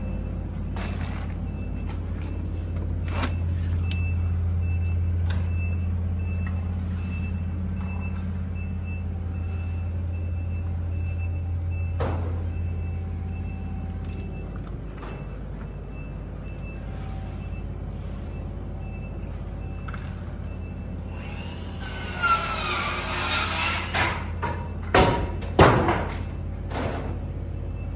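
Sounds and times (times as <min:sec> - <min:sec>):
high beeping alarm: 0:00.0 - 0:21.5
vehicle engine running: 0:00.0 - 0:21.7.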